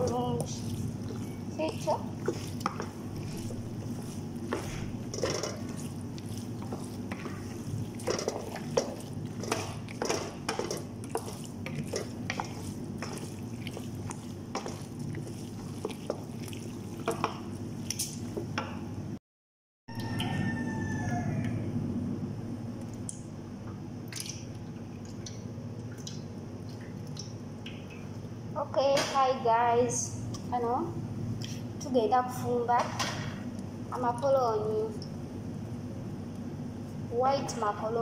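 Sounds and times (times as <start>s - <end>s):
spoon stirring creamy macaroni: 0.0s - 18.5s
steady low hum: 0.0s - 19.2s.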